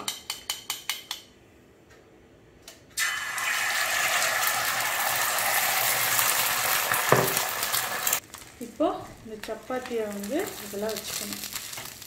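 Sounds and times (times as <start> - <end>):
egg sizzling in hot oil: 3.0 - 12.0.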